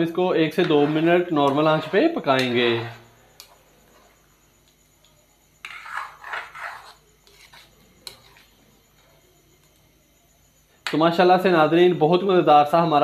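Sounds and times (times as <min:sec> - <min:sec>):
wooden spoon scraping a pan: 0:00.4 - 0:03.2, 0:05.6 - 0:08.6.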